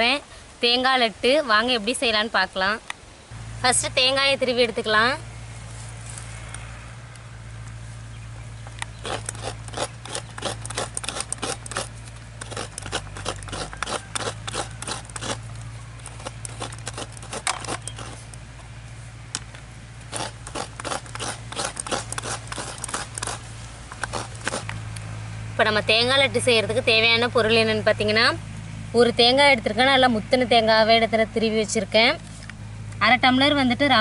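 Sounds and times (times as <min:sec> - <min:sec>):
coconut scraper rasping: 0:08.8 - 0:18.4, 0:20.0 - 0:24.8.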